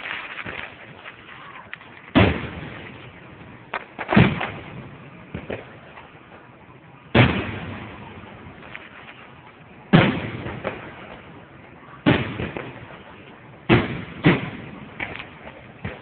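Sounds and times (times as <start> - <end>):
firework shells booming: 0.0 - 16.0
faint firework pops: 3.7 - 6.1, 13.7 - 16.0.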